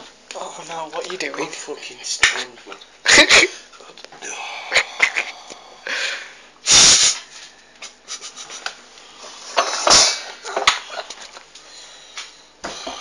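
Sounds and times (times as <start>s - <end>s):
person breathing hard: 4.2s - 7.5s, 11.6s - 13.0s.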